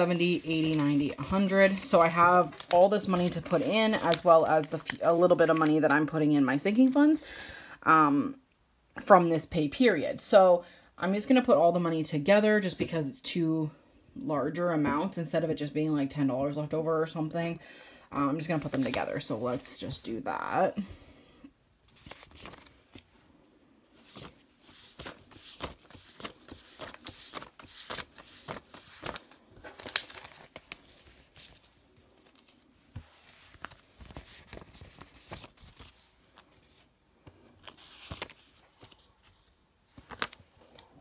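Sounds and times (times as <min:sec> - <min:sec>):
plastic banknotes crinkling: 0:00.0 - 0:07.5, 0:18.4 - 0:19.7, 0:21.8 - 0:23.1, 0:23.9 - 0:41.0.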